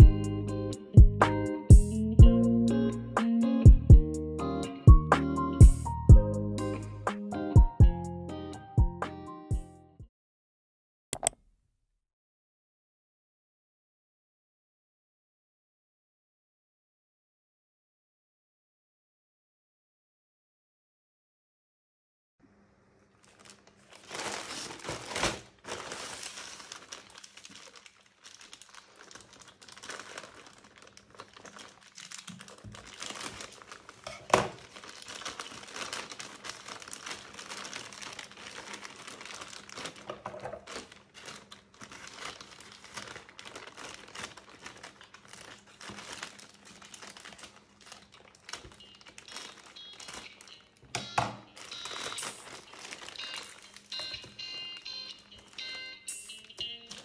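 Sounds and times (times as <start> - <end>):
plastic bag crinkling: 23.1 - 57.0
plastic bag tearing: 23.2 - 57.0
scissors cutting plastic bag: 23.2 - 57.0.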